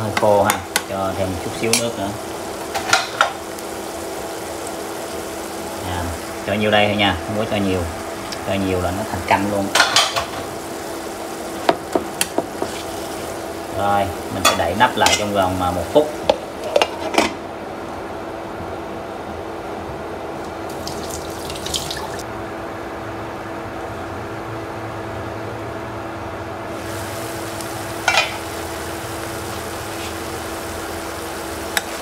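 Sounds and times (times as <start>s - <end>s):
food sizzling under a lid: 0.0s - 17.2s, 20.7s - 22.2s, 26.7s - 32.0s.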